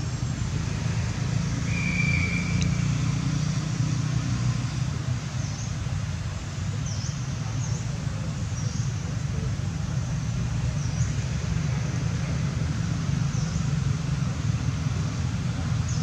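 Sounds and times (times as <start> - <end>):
constant low rumble: 0.0 - 1.8.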